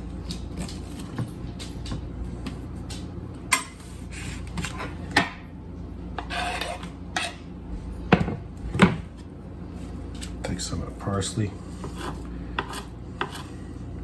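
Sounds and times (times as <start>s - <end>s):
knife scraping: 6.2s - 7.5s, 11.7s - 13.8s.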